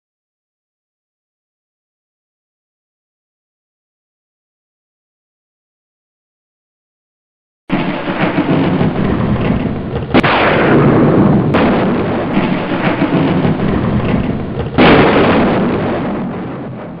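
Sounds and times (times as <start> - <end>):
heavy thunder rumble: 7.7 - 17.0
loud thunder cracks: 7.7 - 17.0.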